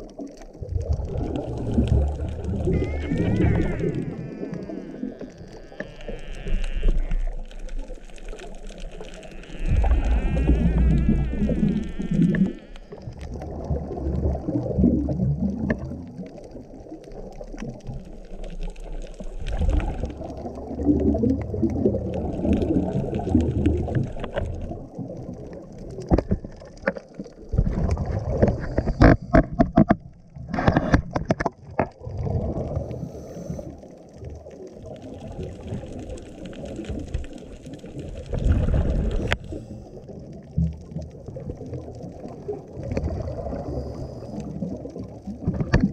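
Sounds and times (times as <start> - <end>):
gurgling exhaled bubbles: 0.0 - 45.9
scuba regulator breathing underwater: 32.7 - 34.0, 38.8 - 40.2, 43.3 - 44.8.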